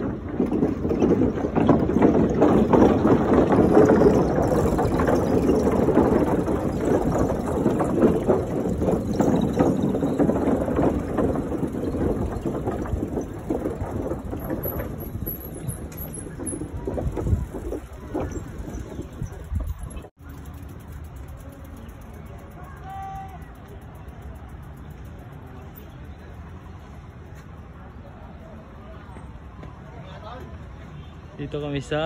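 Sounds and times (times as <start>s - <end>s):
wind buffeting microphone: 0.0s - 21.2s
bike rattling on wooden boardwalk: 0.0s - 32.0s.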